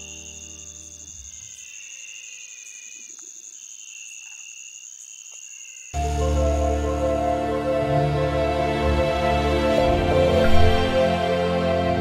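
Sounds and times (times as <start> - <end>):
high insect trill: 0.0 - 6.9
soft background music chord: 6.0 - 12.0.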